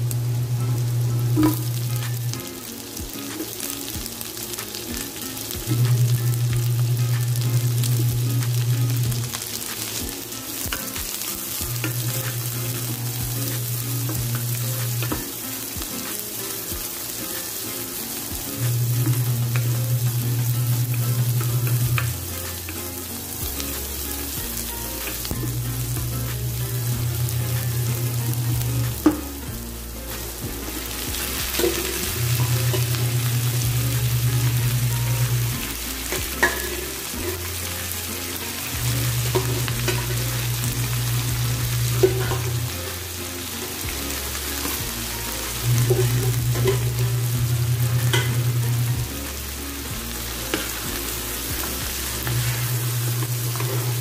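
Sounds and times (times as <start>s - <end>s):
food sizzling in hot oil: 0.0s - 54.0s
spatula scraping and tapping pan: 36.1s - 37.6s, 41.9s - 42.7s, 45.8s - 47.0s, 48.0s - 48.5s.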